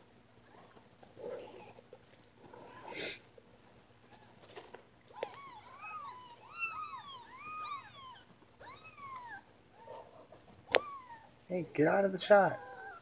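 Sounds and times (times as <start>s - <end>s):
kittens mewing: 2.4s - 3.3s, 5.1s - 11.4s, 12.2s - 13.0s.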